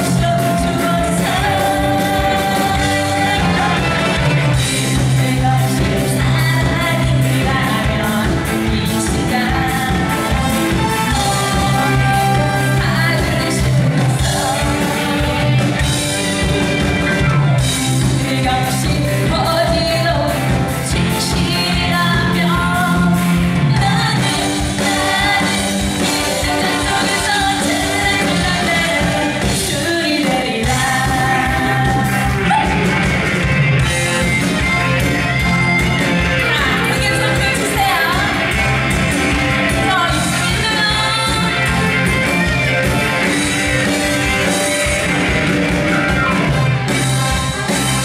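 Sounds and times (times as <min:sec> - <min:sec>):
woman singing into microphone: 0:00.0 - 0:15.9, 0:18.1 - 0:32.4, 0:36.4 - 0:38.6, 0:39.7 - 0:41.8
live band playing: 0:00.0 - 0:48.0.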